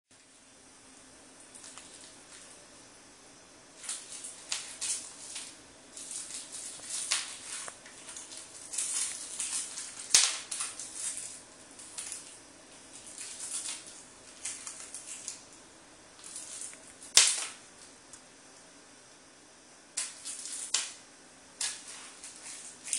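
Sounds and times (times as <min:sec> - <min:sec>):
plastic wrapper crinkling: 0:01.4 - 0:02.5, 0:03.8 - 0:15.6, 0:16.2 - 0:17.9, 0:20.0 - 0:21.0, 0:21.6 - 0:22.9.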